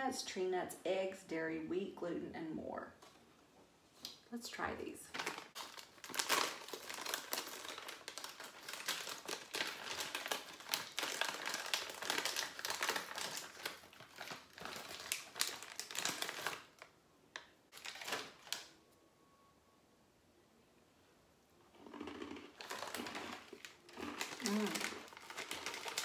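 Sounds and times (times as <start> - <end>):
plastic snack bag crinkling: 5.1 - 18.8, 21.7 - 26.0.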